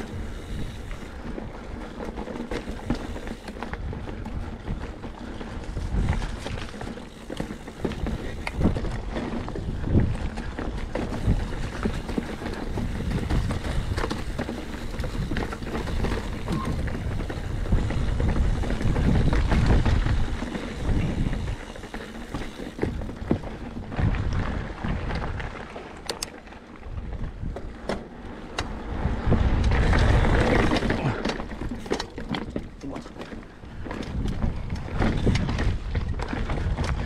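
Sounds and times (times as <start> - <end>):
bike knocking and rattling on stones: 0.0 - 37.0
wind on microphone: 2.9 - 25.6, 28.8 - 31.7, 33.7 - 37.0
tyres rolling on rock: 5.0 - 24.6, 29.5 - 37.0.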